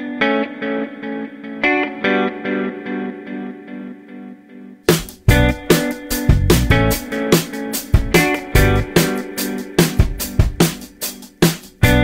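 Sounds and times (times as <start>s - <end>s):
guitar: 0.0s - 12.0s
steady drum beat: 4.9s - 12.0s.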